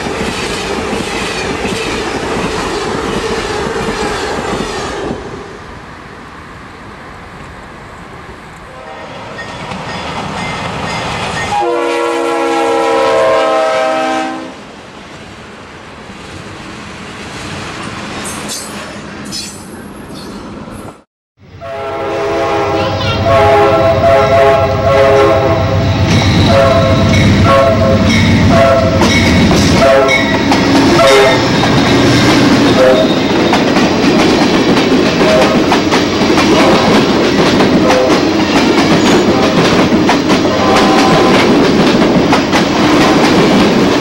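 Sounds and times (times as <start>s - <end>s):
train rumble and clatter: 0.0s - 12.1s, 14.7s - 21.0s, 21.8s - 44.0s
locomotive air horn blasts: 8.7s - 9.1s, 11.5s - 14.6s, 21.6s - 25.8s, 26.4s - 29.1s, 29.7s - 31.5s, 32.7s - 33.3s, 35.2s - 35.6s, 37.8s - 38.2s, 40.6s - 41.4s.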